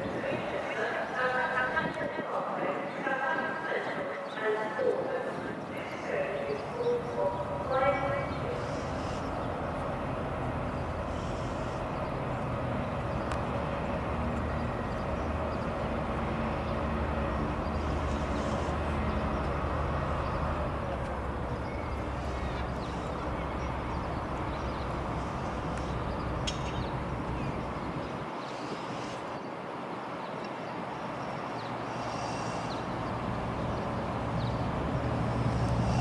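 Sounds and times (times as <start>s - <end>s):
diesel locomotive engine drone: 4.4s - 36.0s
train wagons rumbling on rails: 4.6s - 29.0s.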